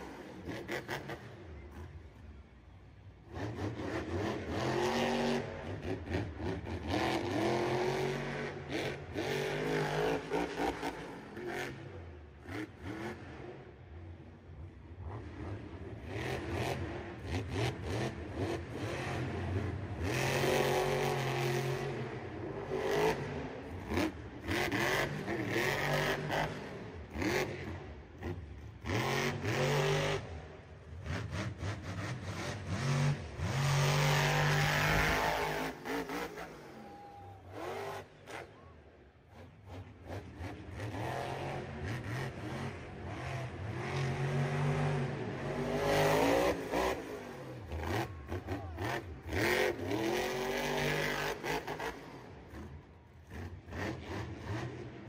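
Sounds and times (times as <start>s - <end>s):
truck engine revving: 15.0s - 38.5s, 39.3s - 55.0s
arena noise: 34.1s - 39.8s, 44.4s - 50.5s.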